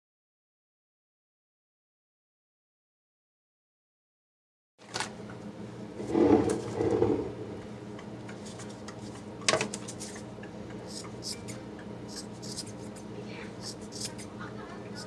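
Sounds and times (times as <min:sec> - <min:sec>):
steady low hum: 0:05.1 - 0:15.0
scissor snips: 0:13.6 - 0:14.3.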